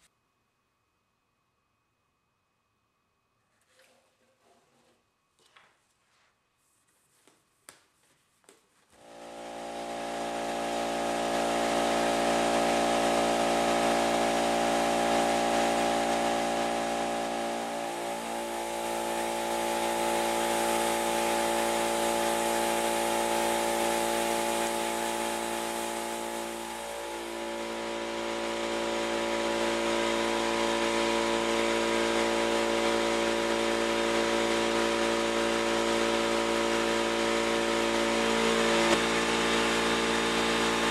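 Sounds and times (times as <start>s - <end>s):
air compressor motor running: 9.0s - 40.9s
hiss of air: 16.2s - 27.5s.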